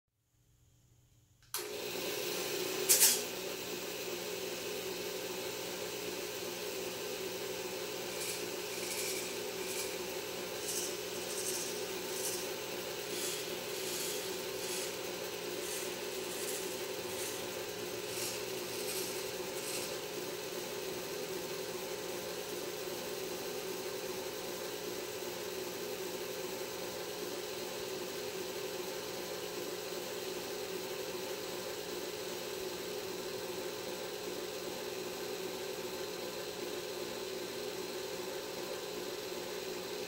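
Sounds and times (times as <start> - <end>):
mechanical drive humming: 2.6 - 22.0
servos whirring: 8.0 - 20.1.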